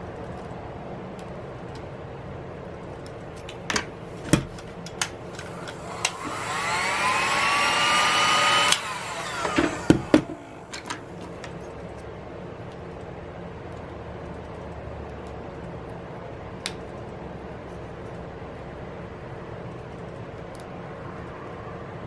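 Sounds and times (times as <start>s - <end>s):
heat gun fan whining: 3.0s - 12.0s
tool knocking on bench: 9.4s - 10.4s.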